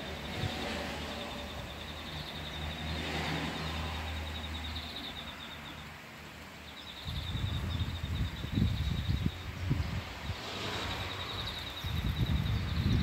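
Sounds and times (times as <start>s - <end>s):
wind buffeting microphone: 0.0s - 2.5s, 6.9s - 13.0s
bird trilling: 0.0s - 5.9s.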